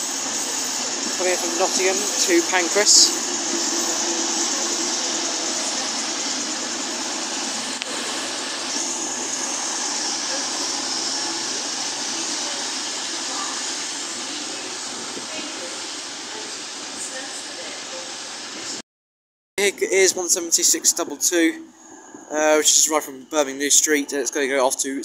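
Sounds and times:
diesel train engines rushing: 0.0s - 18.8s, 19.6s - 24.8s
hiss: 0.0s - 18.8s.

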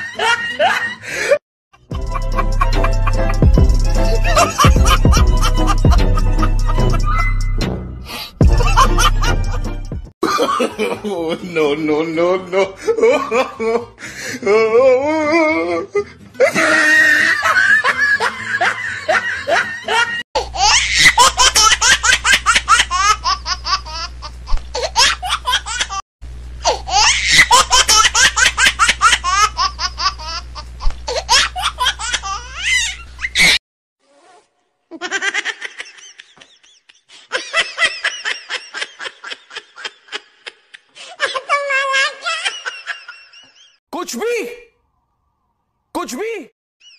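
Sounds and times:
people laughing: 0.0s - 1.4s, 2.0s - 7.4s, 8.4s - 9.6s, 10.2s - 14.0s, 16.0s - 20.2s, 34.9s - 43.8s.

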